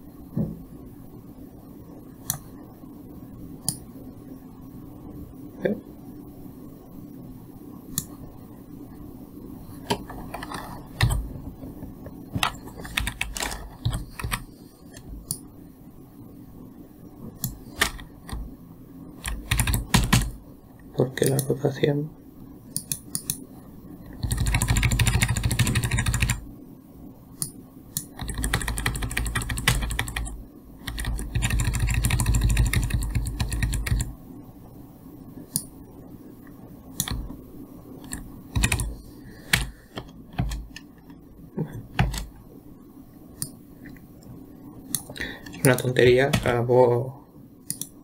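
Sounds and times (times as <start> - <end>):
computer keyboard clicking: 12.4 - 15.4, 17.4 - 18.4, 19.2 - 20.4, 22.8 - 23.4, 24.2 - 26.4, 28.0 - 34.1, 37.0 - 37.3, 38.0 - 40.9, 41.9 - 42.3, 44.9 - 46.6, 47.7 - 48.0.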